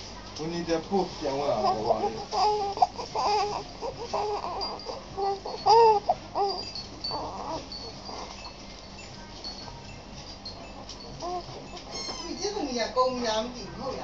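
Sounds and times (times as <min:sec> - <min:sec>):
baby crying and whimpering: 0:01.4 - 0:08.5, 0:11.2 - 0:12.4.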